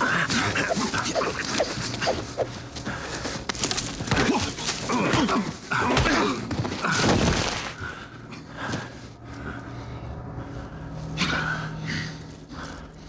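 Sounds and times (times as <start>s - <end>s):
men grunting and straining: 0.0s - 2.0s, 4.0s - 7.4s.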